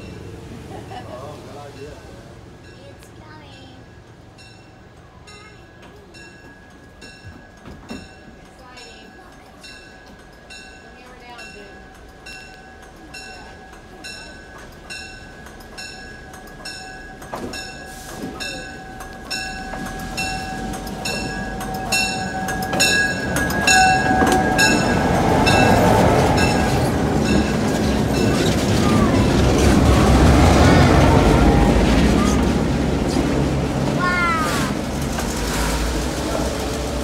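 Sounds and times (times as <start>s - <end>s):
diesel locomotive engine rumble: 0.0s - 37.0s
rail-joint clicks: 2.6s - 37.0s.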